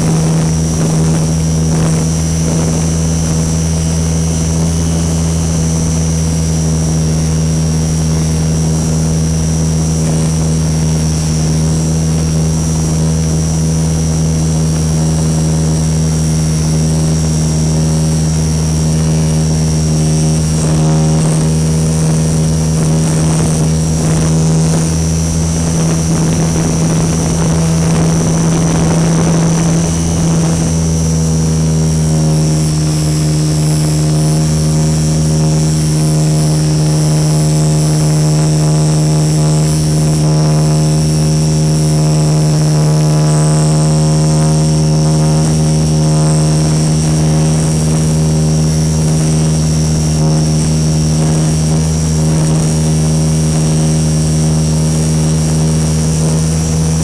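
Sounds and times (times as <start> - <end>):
high whine: 0.0 - 57.0
model plane motor droning: 0.0 - 57.0
rough rushing noise: 0.0 - 57.0.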